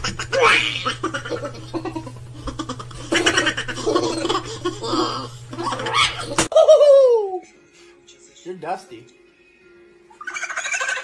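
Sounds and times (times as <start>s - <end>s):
person laughing: 0.0s - 7.5s, 10.2s - 11.0s
steady low hum: 0.0s - 8.4s.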